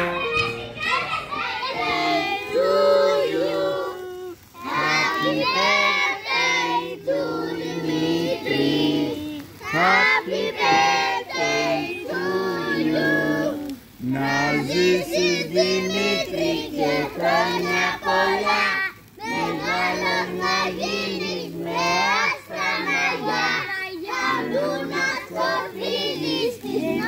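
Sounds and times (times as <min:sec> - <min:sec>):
backing music: 0:00.0 - 0:02.5
child singing: 0:00.0 - 0:27.0.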